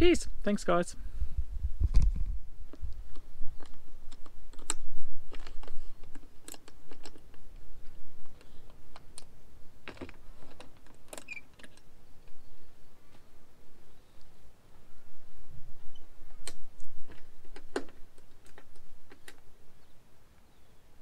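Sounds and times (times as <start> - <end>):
clicks and knocks of tent shell: 3.6 - 11.9, 16.3 - 19.4.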